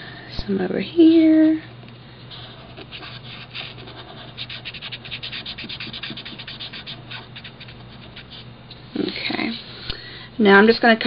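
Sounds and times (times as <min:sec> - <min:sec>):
marker scratching on paper: 0:02.3 - 0:08.5.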